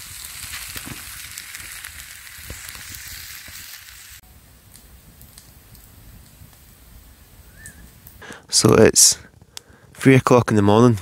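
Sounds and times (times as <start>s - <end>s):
food sizzling in frying pan: 0.0s - 4.2s
quiet hiss with crackles: 0.0s - 11.0s.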